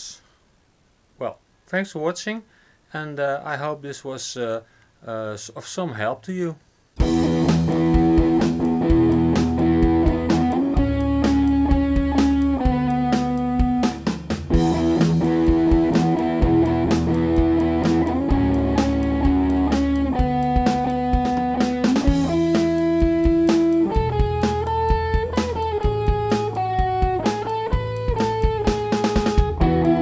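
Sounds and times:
band song with electric guitar: 7.0s - 30.0s.

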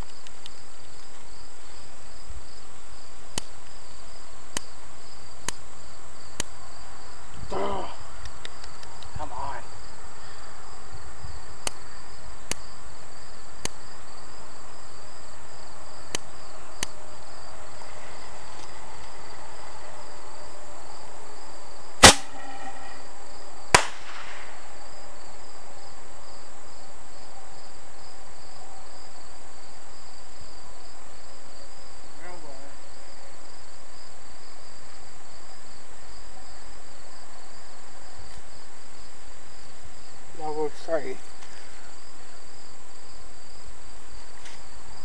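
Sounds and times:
crickets chirping: 0.0s - 45.0s
firework mortar bangs: 22.0s - 23.0s, 23.7s - 24.6s.

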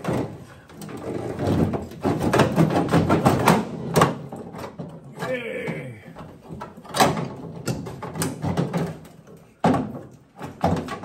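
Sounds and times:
sheet metal rattling and scraping: 0.0s - 5.5s.

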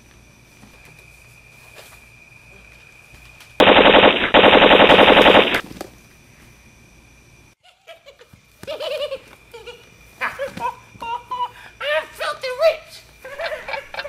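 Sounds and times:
machine-gun fire: 3.6s - 5.6s.

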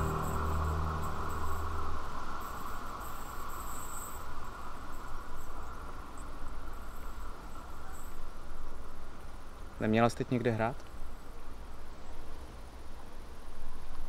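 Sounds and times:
high-pitched chirps: 0.0s - 2.1s
music cue: 0.0s - 2.4s
steady outdoor hiss: 0.0s - 14.0s.

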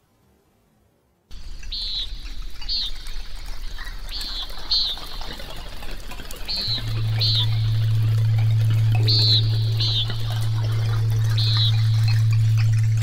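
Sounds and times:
bird chirping: 1.3s - 13.0s
flowing water: 1.3s - 13.0s
steady low hum: 1.3s - 13.0s.

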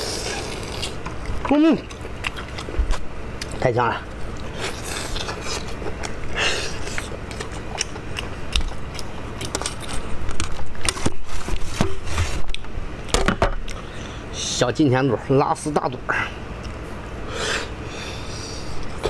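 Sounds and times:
chewing and tearing meat: 0.0s - 11.8s.

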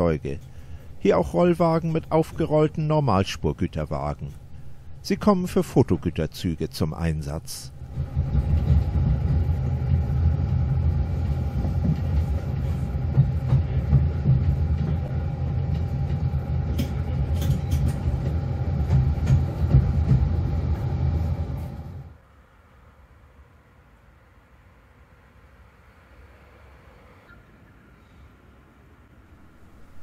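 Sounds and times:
constant whine: 0.0s - 22.2s
railcar engine and wheels rumble: 0.0s - 30.0s.

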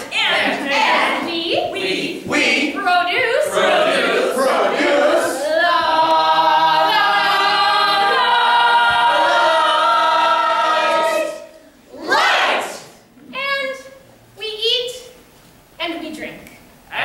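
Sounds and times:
group singing unaccompanied: 0.0s - 13.0s.

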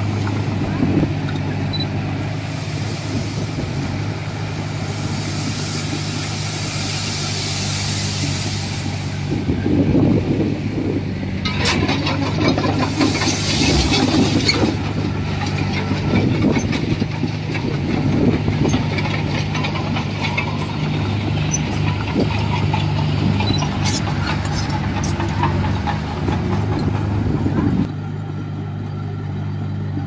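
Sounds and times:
bulldozer diesel engine running: 0.0s - 30.0s
short knocks and clanks: 11.4s - 27.9s.

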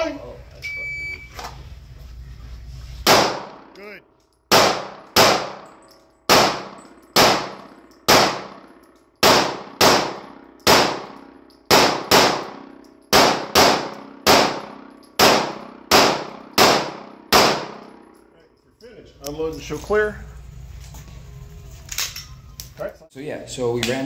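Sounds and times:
pistol shots echoing indoors: 3.0s - 3.8s, 4.5s - 18.3s.

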